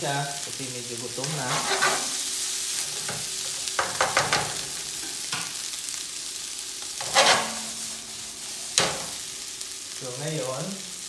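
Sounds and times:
rice sizzling in a frying pan: 0:00.0 - 0:11.0
spatula scraping a pan: 0:01.2 - 0:05.3, 0:06.8 - 0:09.2
knock on a pan: 0:03.8 - 0:04.6.

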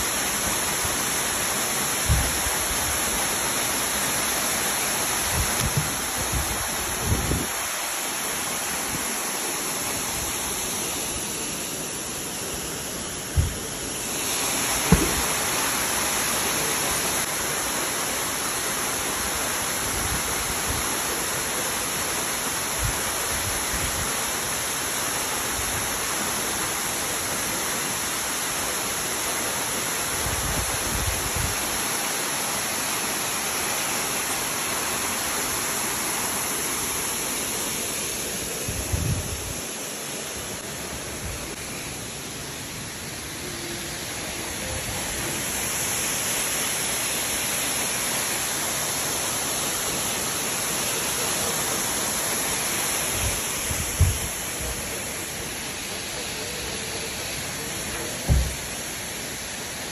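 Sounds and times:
waterfall rushing: 0:00.0 - 0:59.9
low thumps: 0:13.4 - 0:13.6.

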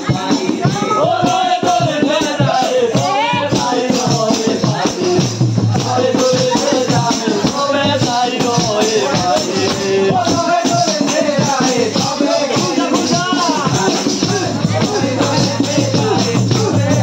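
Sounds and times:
rattling percussion beat: 0:00.0 - 0:17.0
voices singing folk melody: 0:00.0 - 0:17.0.

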